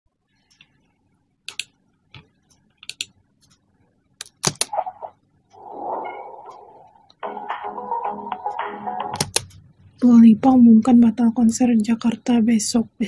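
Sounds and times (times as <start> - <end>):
computer mouse clicks: 1.5 - 3.6, 4.2 - 4.7, 9.2 - 9.6.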